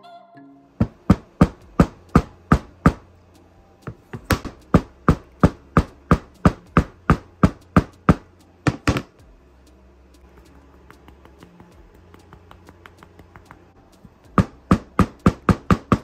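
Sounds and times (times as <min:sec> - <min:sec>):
hammer knocking on hard object: 0:00.8 - 0:03.0, 0:03.9 - 0:09.1, 0:14.3 - 0:16.0.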